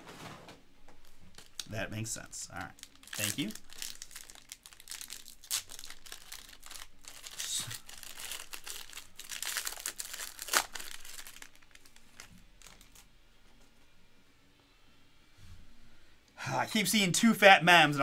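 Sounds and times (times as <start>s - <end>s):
foil card pack crinkling and tearing: 2.6s - 13.1s.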